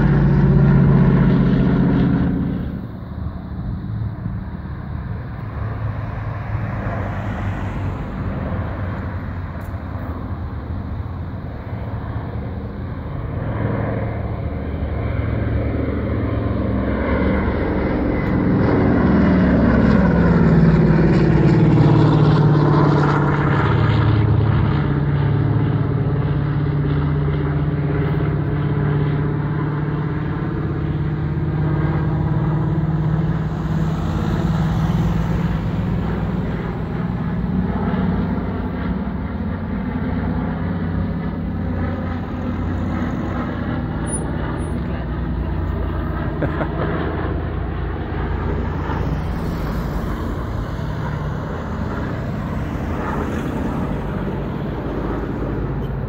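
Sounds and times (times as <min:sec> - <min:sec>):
propeller airliner engines droning: 0:00.0 - 0:56.0.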